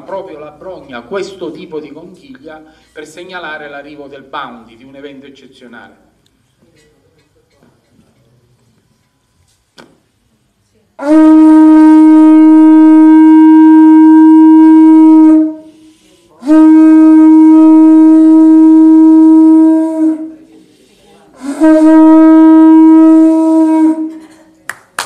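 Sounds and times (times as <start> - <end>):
shell trumpet blasts: 11.0 - 15.7, 16.4 - 20.4, 21.4 - 24.2.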